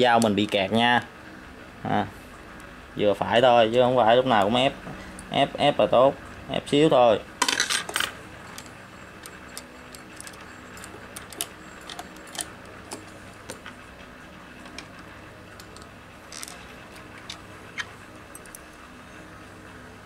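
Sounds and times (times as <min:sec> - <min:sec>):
faint steady hum: 0:00.0 - 0:20.0
metal parts and tools clinking: 0:07.4 - 0:13.6.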